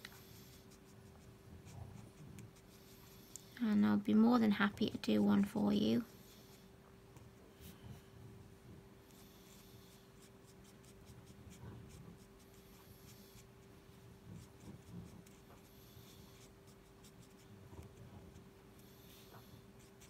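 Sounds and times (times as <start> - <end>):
marker scratching on paper: 0.0 - 3.2, 9.5 - 13.6, 14.4 - 18.4, 19.4 - 20.0
faint steady hum: 0.0 - 20.0.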